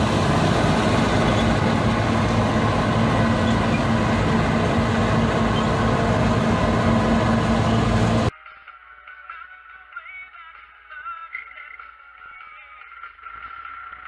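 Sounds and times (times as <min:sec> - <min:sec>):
combine harvester machinery: 0:00.0 - 0:08.3.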